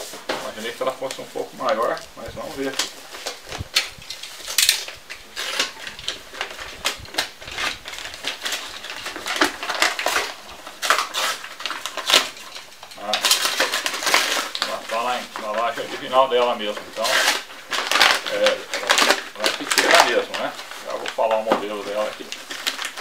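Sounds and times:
cardboard flap tearing: 0:02.6 - 0:23.0
box cutter slicing tape: 0:09.2 - 0:12.4, 0:17.0 - 0:18.2.

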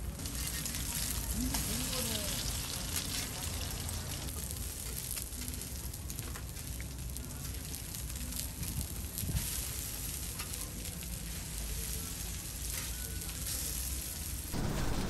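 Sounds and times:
fish fillets sizzling on griddle: 0:00.0 - 0:14.5.

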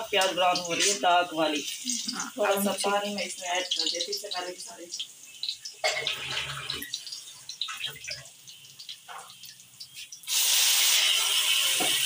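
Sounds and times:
loud sizzle and steam hiss: 0:09.9 - 0:12.0.

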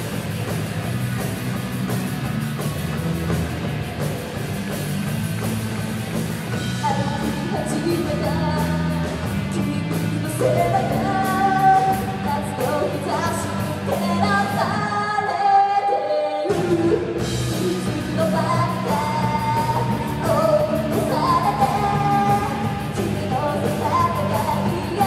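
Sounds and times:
drum kit: 0:00.0 - 0:15.0, 0:16.4 - 0:25.0
bass guitar: 0:00.0 - 0:15.5, 0:16.5 - 0:25.0
electric guitars: 0:00.0 - 0:25.0
girl singing: 0:06.8 - 0:25.0.

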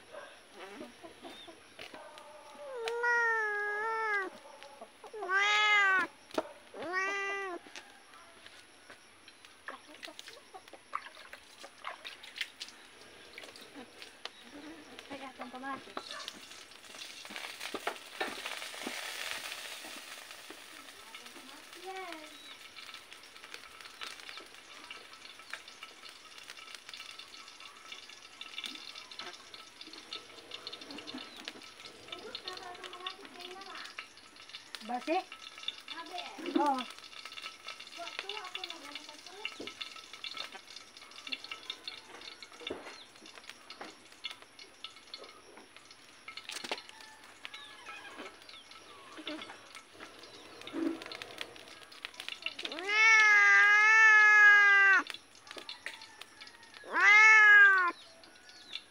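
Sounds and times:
wood fire crackling and sizzling: 0:00.0 - 0:58.9
faint bird chirps: 0:20.8 - 0:23.0, 0:27.1 - 0:35.2, 0:41.0 - 0:52.6.

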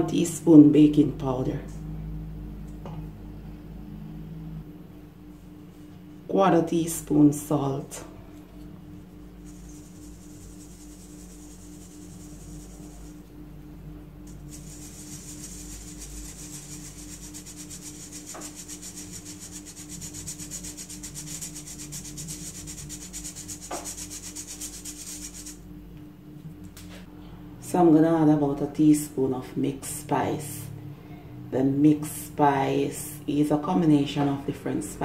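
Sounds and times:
spoon rubbing flour through strainer: 0:09.1 - 0:13.3, 0:14.3 - 0:25.6.

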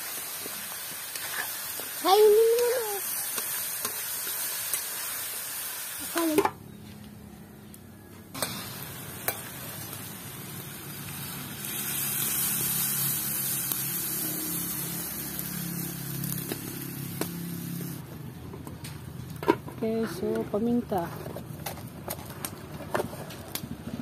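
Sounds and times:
water sizzling in hot pan: 0:00.0 - 0:06.4, 0:08.4 - 0:18.0.

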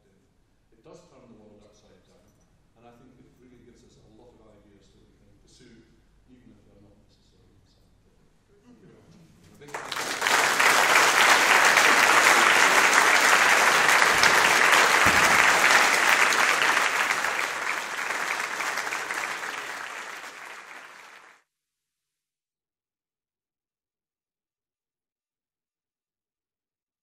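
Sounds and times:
audience applauding: 0:09.7 - 0:21.4.

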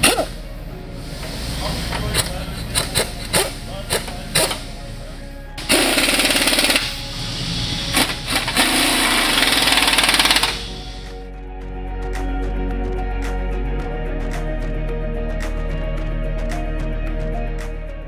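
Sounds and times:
pneumatic impact wrench rattling: 0:00.0 - 0:00.4, 0:01.9 - 0:04.7, 0:05.6 - 0:11.1
background music: 0:00.0 - 0:18.0.

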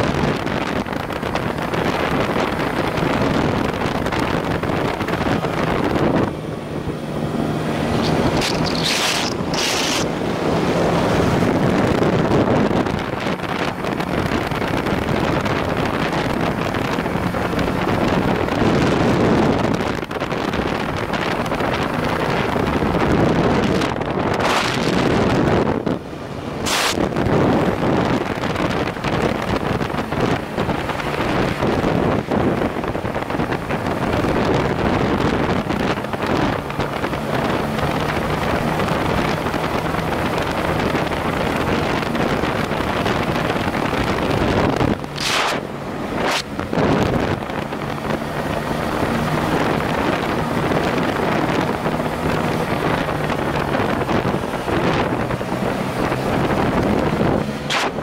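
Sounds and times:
motorcycle engine running: 0:00.0 - 0:58.0
wind roar on microphone: 0:00.0 - 0:58.0.

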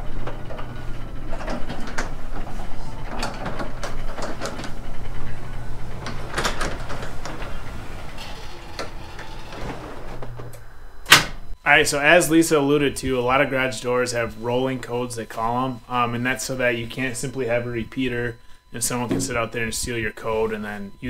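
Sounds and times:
garage door panels clicking and clunking: 0:00.0 - 0:11.6
garage door opener humming: 0:00.0 - 0:21.0.

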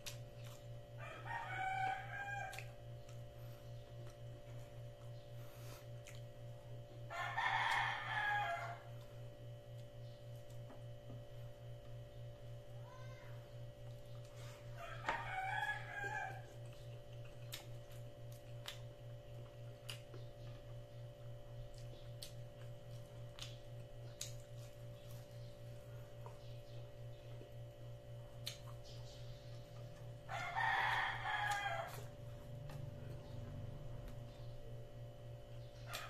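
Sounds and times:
steady low hum: 0:00.0 - 0:36.0
rooster crowing: 0:01.0 - 0:02.8, 0:07.1 - 0:09.0, 0:14.7 - 0:16.6, 0:30.2 - 0:32.2.

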